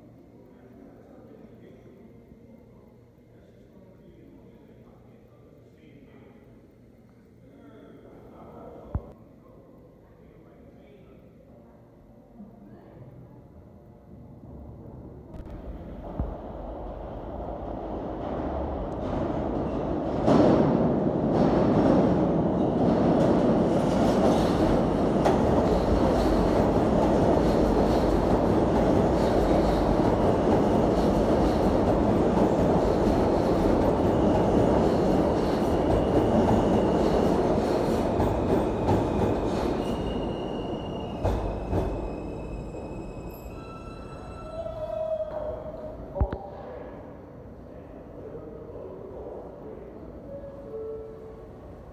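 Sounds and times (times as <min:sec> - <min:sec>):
subway train wheels rumbling: 0:13.8 - 0:51.9.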